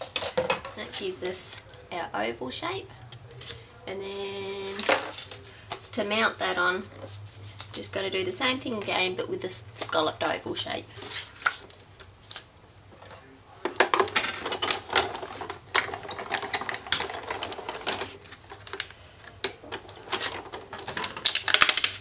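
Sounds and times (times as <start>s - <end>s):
plastic plates clattering: 0.0s - 1.8s, 4.2s - 7.2s, 13.0s - 22.0s
hand-cranked machine clicking and rattling: 13.8s - 22.0s.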